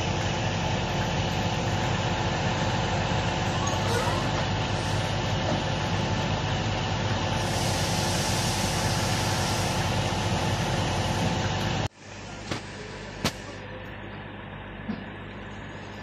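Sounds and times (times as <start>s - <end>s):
heavy diesel machinery running: 0.0s - 16.0s.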